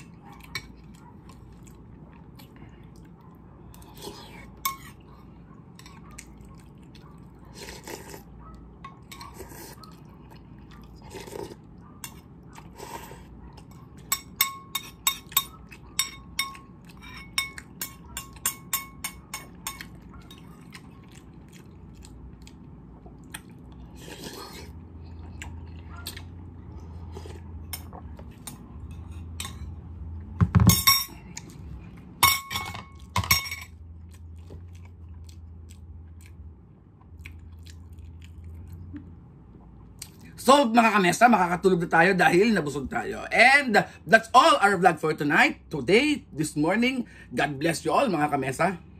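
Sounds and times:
metal spoon clinking on ceramic bowl: 14.1s - 19.9s, 30.6s - 31.2s, 32.2s - 33.8s.

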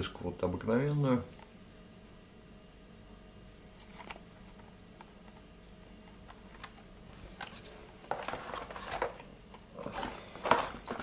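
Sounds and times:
crinkly plastic rustle: 6.4s - 11.0s.

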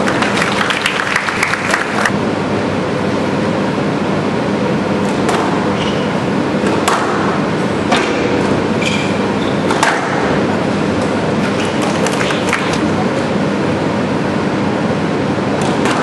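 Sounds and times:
hall hum: 0.0s - 16.0s
ball hitting walls: 5.0s - 6.0s, 6.6s - 10.4s, 15.6s - 16.0s
racket striking squash ball: 5.0s - 12.8s, 15.6s - 16.0s
shoe squeaks: 5.7s - 6.2s, 8.7s - 9.8s.

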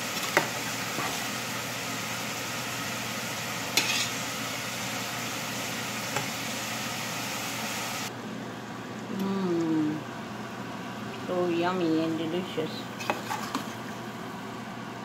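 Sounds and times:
sauce hissing in a pan: 0.0s - 8.1s
ladle stirring: 13.0s - 14.0s.

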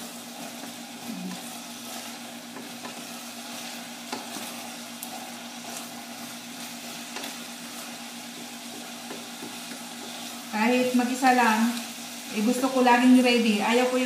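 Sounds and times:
beans sizzling in a pot: 0.0s - 14.0s
spatula scraping and tapping pot: 0.4s - 10.5s.

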